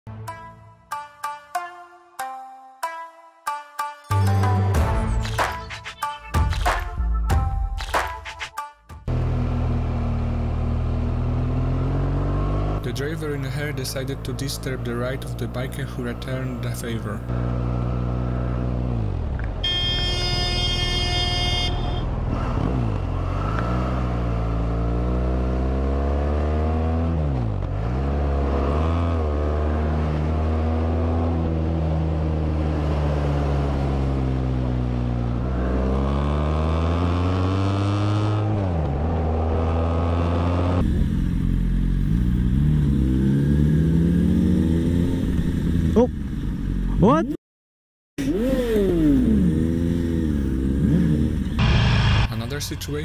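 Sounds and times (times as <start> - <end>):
motorcycle engine revving: 9.1 - 47.1, 48.2 - 52.3
vehicle horn: 19.6 - 22.3.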